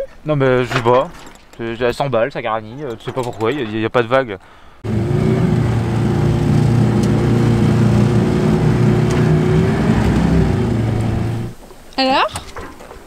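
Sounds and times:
outboard motor running: 4.8s - 11.6s.

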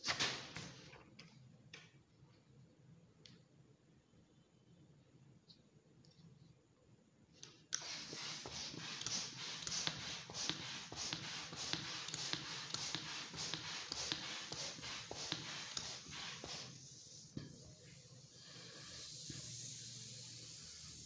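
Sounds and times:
balloon deflating with flapping rattle: 7.8s - 17.0s, 18.3s - 21.0s.

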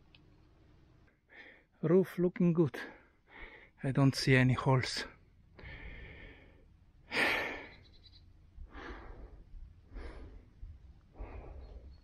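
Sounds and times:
man breathing: 1.1s - 1.7s, 2.8s - 3.8s, 5.5s - 7.8s, 8.6s - 12.0s.

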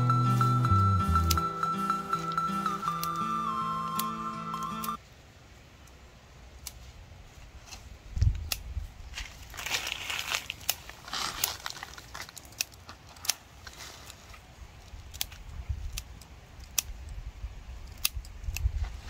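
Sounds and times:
foliage rustling: 6.5s - 17.1s
branches snapping: 7.7s - 17.1s.

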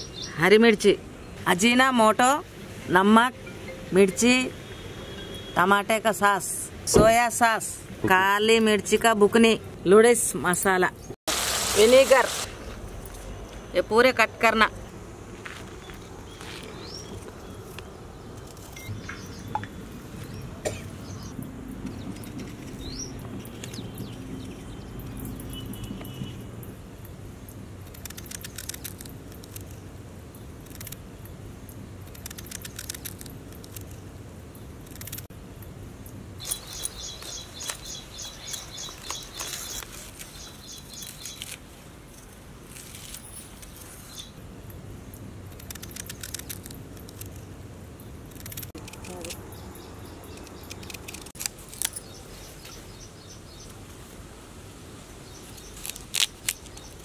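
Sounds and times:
birds chirping: 15.8s - 26.5s, 36.4s - 41.6s, 49.1s - 51.3s.

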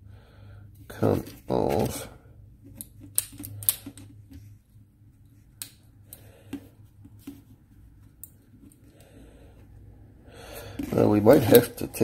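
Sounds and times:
plastic and metal parts clicking: 2.7s - 4.4s.

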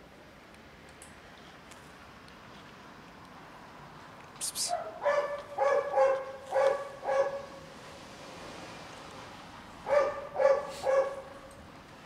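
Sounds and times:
dog barking: 4.7s - 7.6s, 9.8s - 11.5s.

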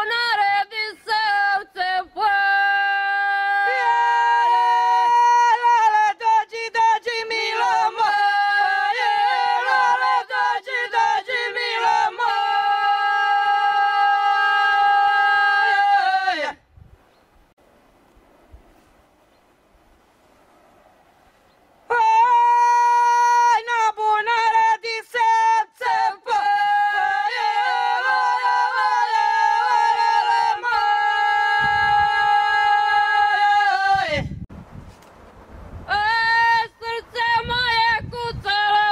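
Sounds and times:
women singing unaccompanied: 0.0s - 16.6s, 21.9s - 34.3s, 35.9s - 38.9s.

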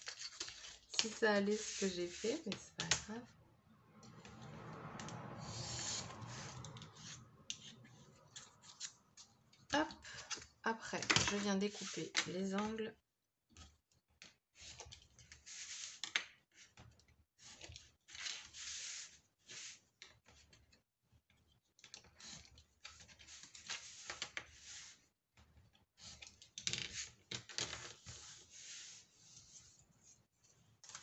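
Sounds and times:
craft knife scraping through paper: 0.0s - 2.6s, 5.4s - 9.0s
paper rustling: 0.0s - 3.0s.

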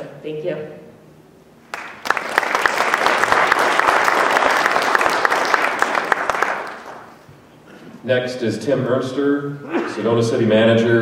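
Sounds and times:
audience applauding: 1.7s - 7.2s.

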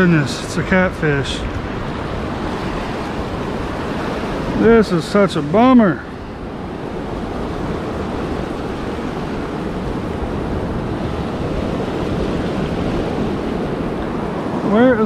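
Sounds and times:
surf rushing on beach: 0.0s - 15.0s
wind on microphone: 0.0s - 15.0s.

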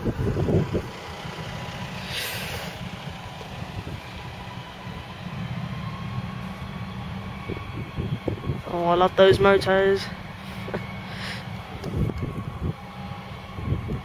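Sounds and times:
jet airliner taxiing: 0.0s - 14.0s
service truck engine rumble: 0.0s - 14.0s
short hiss: 2.0s - 2.8s.

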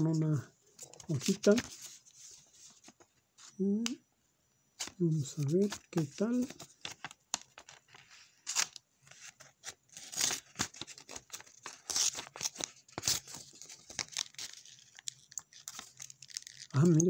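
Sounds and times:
paper rustling and tearing: 0.9s - 3.5s, 4.8s - 17.0s.

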